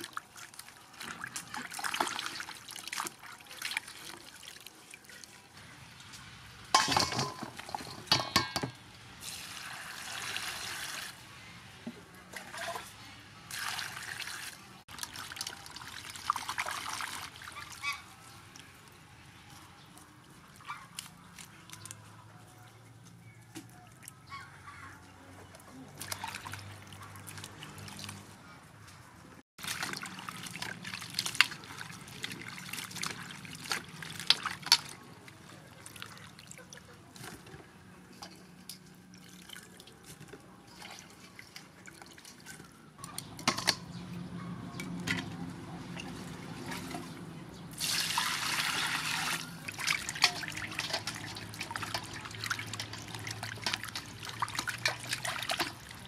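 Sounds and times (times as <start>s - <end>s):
water splashing and sloshing: 0.0s - 22.8s, 23.5s - 56.0s
water pouring into metal bowl: 47.8s - 56.0s.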